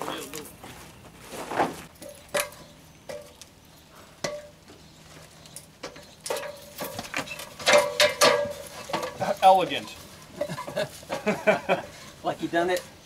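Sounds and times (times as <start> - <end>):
metal ladder clanking: 1.9 - 3.4, 5.6 - 12.1.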